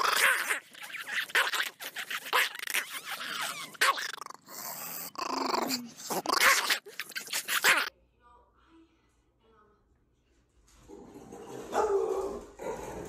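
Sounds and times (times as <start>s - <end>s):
dog growling and howling: 0.0s - 7.9s, 10.9s - 13.0s.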